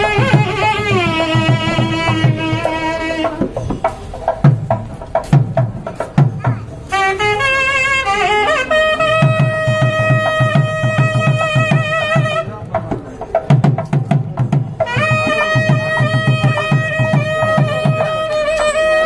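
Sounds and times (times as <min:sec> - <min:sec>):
barrel drum strokes: 0:00.0 - 0:07.5, 0:08.8 - 0:19.0.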